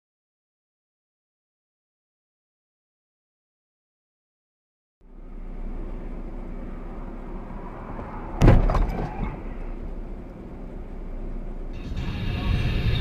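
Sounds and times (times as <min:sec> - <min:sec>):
car road and engine noise: 0:05.0 - 0:13.0
loud crash impact: 0:08.4 - 0:09.2.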